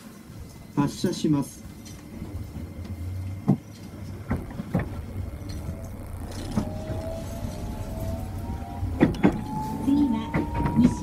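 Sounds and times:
train rumbling: 0.0 - 11.0
train wheels clanking on track: 9.0 - 11.0.

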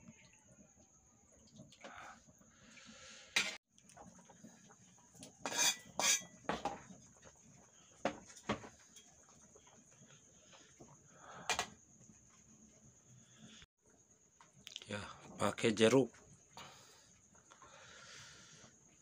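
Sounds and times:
metal spatula scraping wok: 5.4 - 6.4.

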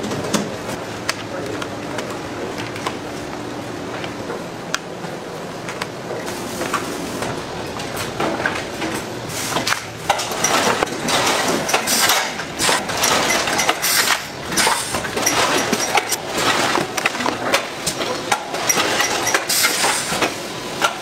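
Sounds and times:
packing machinery running: 0.0 - 21.0
irregular clicks and clinks: 10.1 - 16.2.

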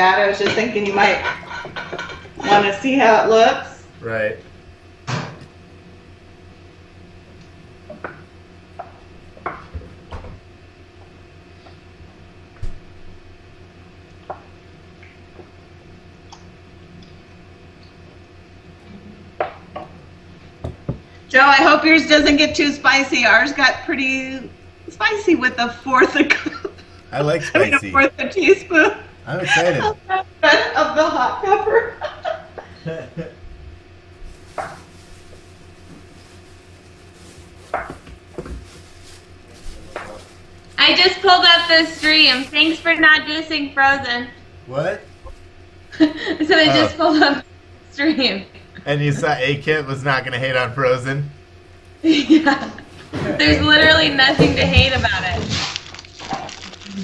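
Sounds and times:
steady low hum: 0.0 - 57.0
utensils and dishes clattering: 0.4 - 2.4.

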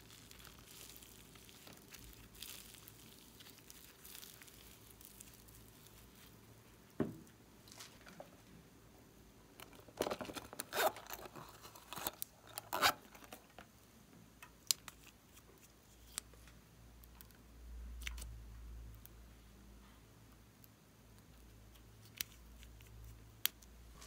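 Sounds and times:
plastic objects clicking and rustling: 9.6 - 13.7.

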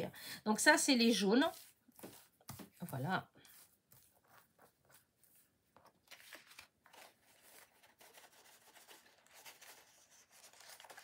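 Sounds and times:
paper and plastic film rustling: 5.8 - 11.0.

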